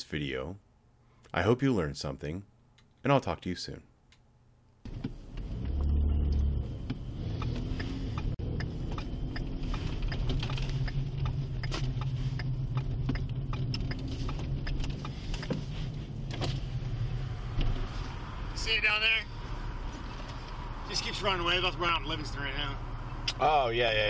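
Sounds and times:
car engine and road drone: 4.8s - 24.0s.

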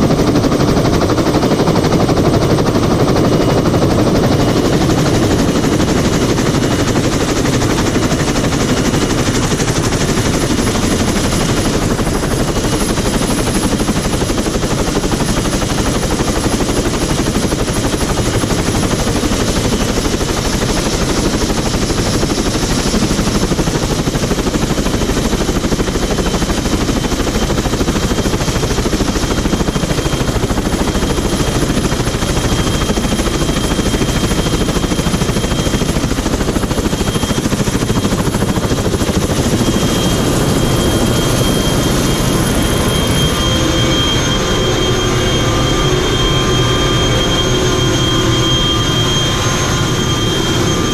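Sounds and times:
helicopter rotor blades chopping: 0.0s - 50.9s
high engine whine: 36.2s - 50.9s.

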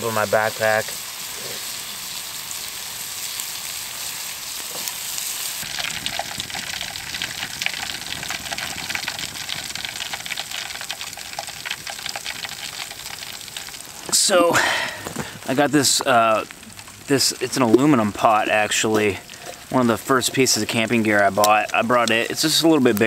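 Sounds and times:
bacon sizzling: 0.0s - 23.0s
crackles and pops: 0.0s - 23.0s.

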